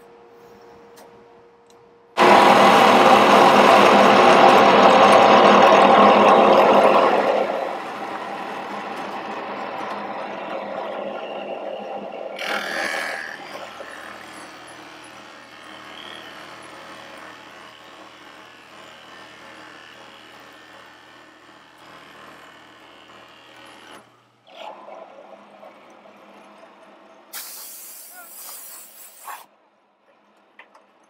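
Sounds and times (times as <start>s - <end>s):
motor hum: 1.0s - 27.2s
drill press boring into wood: 12.4s - 24.1s.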